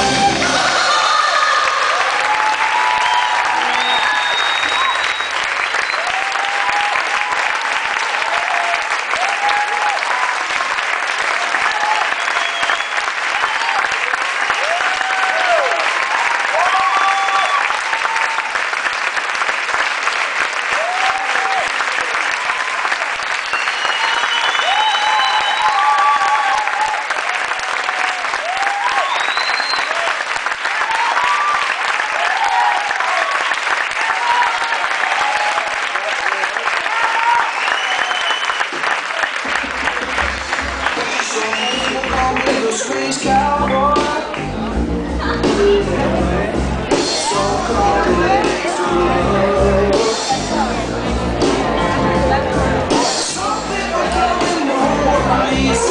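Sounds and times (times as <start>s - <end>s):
people whooping: 0.0s - 10.6s, 11.3s - 18.6s, 20.7s - 39.5s, 55.1s - 55.9s
audience applauding: 0.0s - 44.6s, 45.2s - 55.9s.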